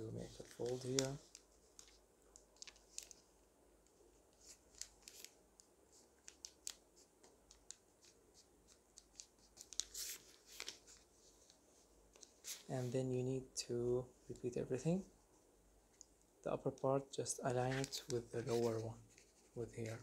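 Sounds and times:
paper rustling and crinkling: 0.0 - 3.3, 4.3 - 12.9, 17.6 - 20.0.

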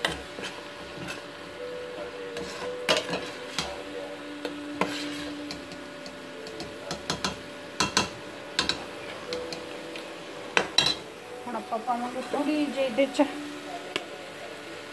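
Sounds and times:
spoon stirring and scraping pot: 0.0 - 1.3, 2.3 - 3.8, 4.8 - 5.7
spoon clinking against pot: 10.6 - 11.0.

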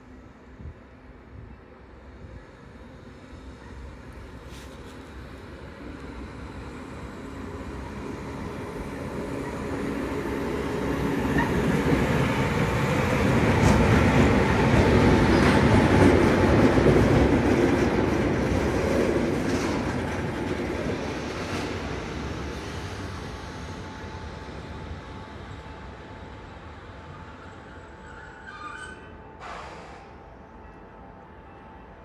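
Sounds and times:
diesel locomotive engine: 0.0 - 32.0
train wheels on rails: 3.8 - 25.6.

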